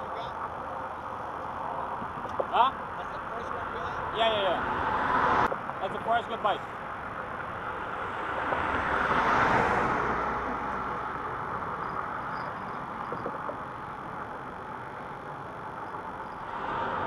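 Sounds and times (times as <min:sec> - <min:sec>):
vehicle passing: 0:02.7 - 0:05.5, 0:06.3 - 0:17.0.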